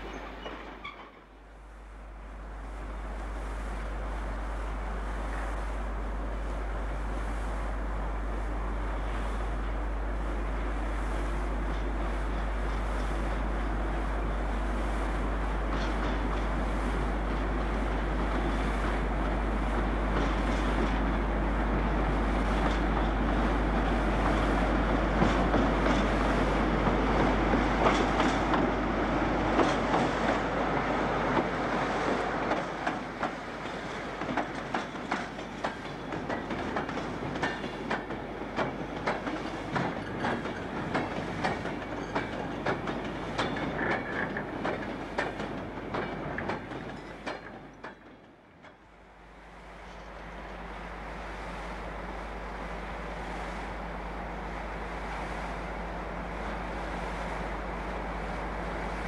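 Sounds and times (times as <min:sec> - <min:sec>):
train wagons clattering over rail joints: 0:00.0 - 0:01.4, 0:15.6 - 0:49.0
diesel locomotive engine passing: 0:47.6 - 0:59.0.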